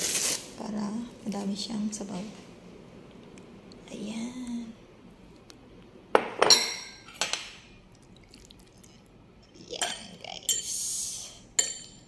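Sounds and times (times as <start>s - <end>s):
ceramic dishes clinking: 6.2s - 7.6s, 11.6s - 12.0s.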